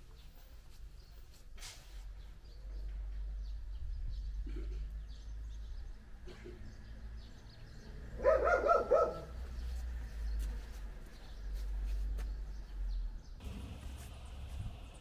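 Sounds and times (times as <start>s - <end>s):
dog barking: 8.2s - 9.4s
steady low rumble: 13.4s - 15.0s.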